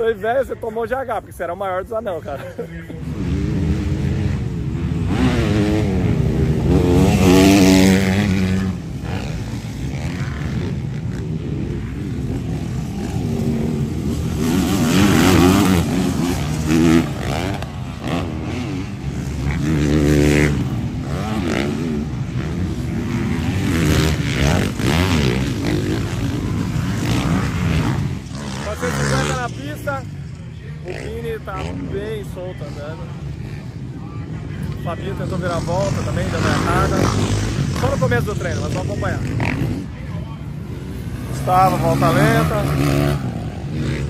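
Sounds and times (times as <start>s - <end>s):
motocross bikes revving: 0.0s - 44.0s.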